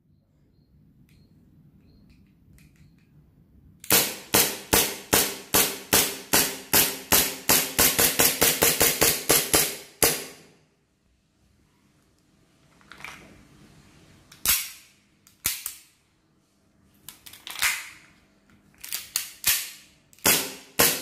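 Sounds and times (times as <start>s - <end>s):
airsoft pistol shots: 3.8s - 10.5s, 20.2s - 21.0s.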